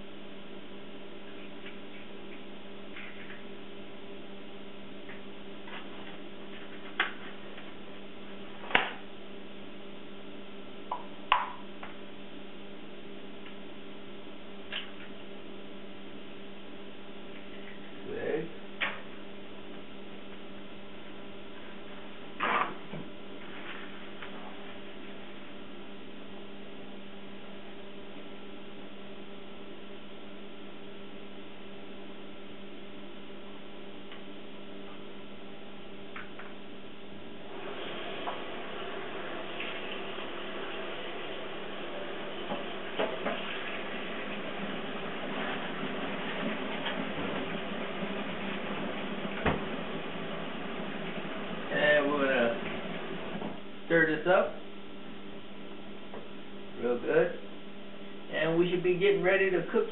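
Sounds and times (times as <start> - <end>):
steady low hum: 0.0 - 59.9
constant hiss: 37.3 - 59.9.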